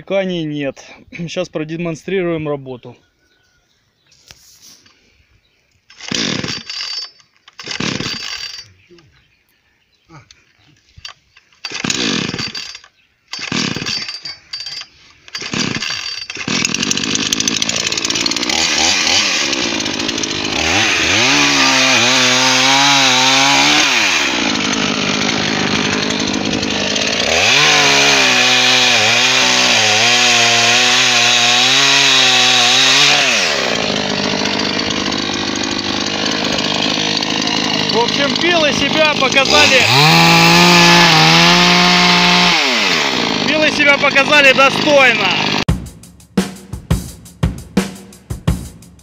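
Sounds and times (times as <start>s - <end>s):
chainsaw cutting branches: 5.8s - 8.7s, 11.0s - 45.7s
chainsaw pull-started: 5.9s - 8.7s, 11.0s - 45.7s.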